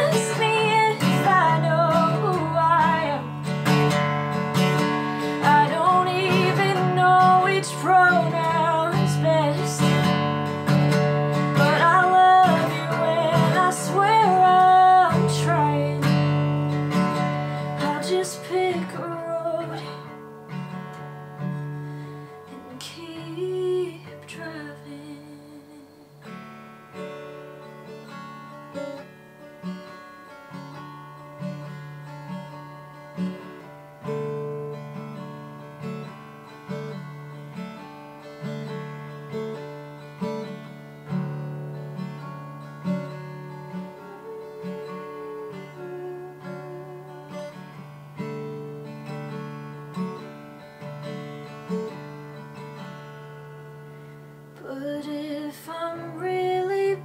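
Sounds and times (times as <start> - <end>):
person singing: 0.0 - 3.4, 5.2 - 10.0, 11.4 - 16.2, 17.4 - 20.1, 43.8 - 47.8, 54.6 - 57.0
acoustic guitar strumming: 0.0 - 57.0.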